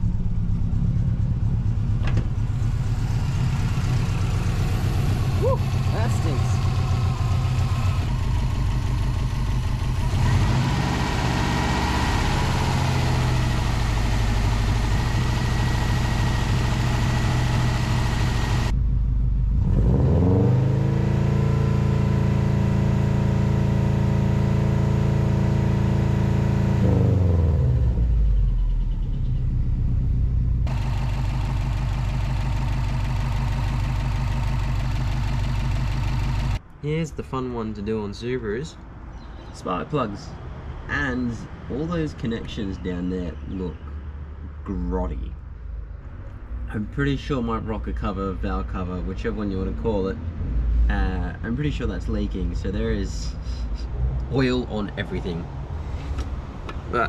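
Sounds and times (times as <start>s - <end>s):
car engine revving and idling: 0.0s - 36.6s.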